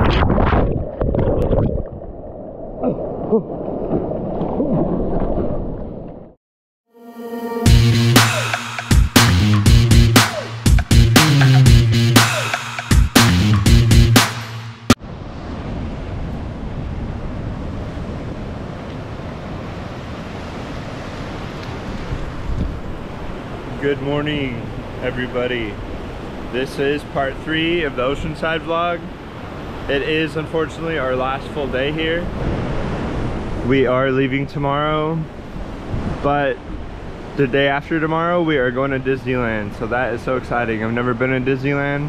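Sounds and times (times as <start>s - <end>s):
water sloshing: 0.0s - 6.3s
wind rumbling on microphone: 0.0s - 6.3s, 15.0s - 25.0s, 30.8s - 34.6s, 35.2s - 37.4s
ocean surf rushing water: 7.6s - 13.6s, 14.2s - 34.2s.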